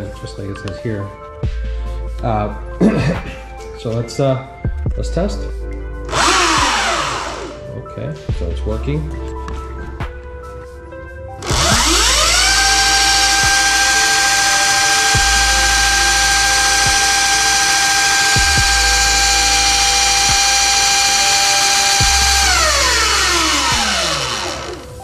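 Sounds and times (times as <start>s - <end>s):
electric motor whine: 6.1s - 7.6s, 11.4s - 25.0s.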